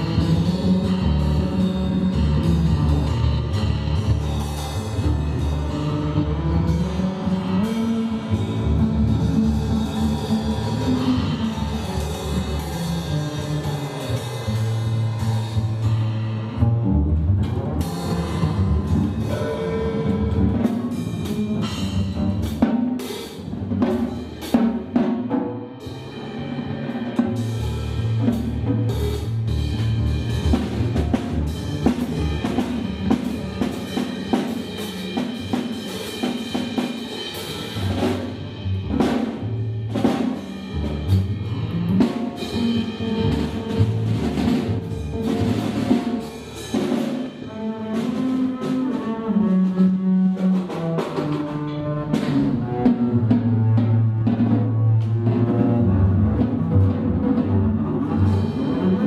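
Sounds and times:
bowed double bass notes: 0.0s - 59.0s.

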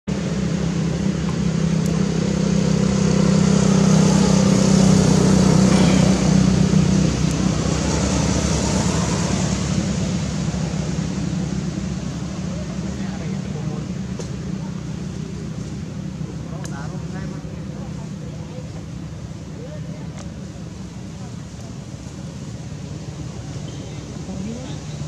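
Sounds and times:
engine humming steadily: 0.1s - 25.0s.

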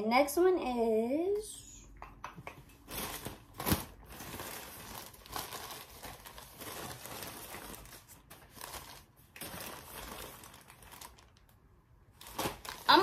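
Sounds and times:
plastic packaging crinkling: 2.8s - 13.0s.

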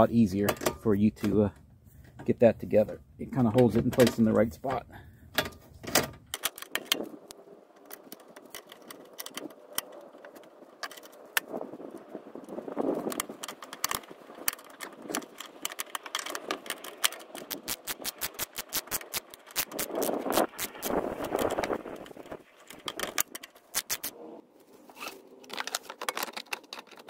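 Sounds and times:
hand ratchet clicking: 15.2s - 21.6s, 22.8s - 24.1s.

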